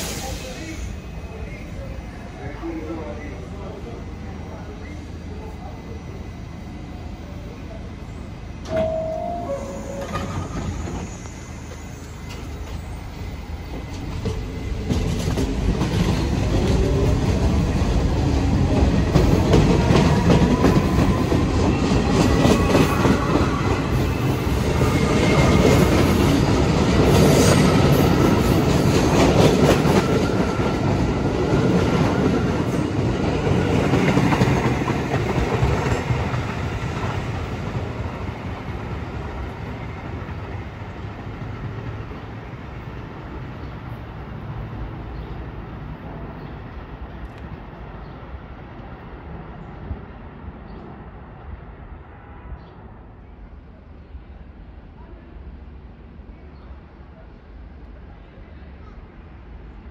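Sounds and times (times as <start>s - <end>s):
subway train wheels clattering: 0.0s - 53.4s
train whine: 0.0s - 56.3s
two-note tone: 8.7s - 10.7s.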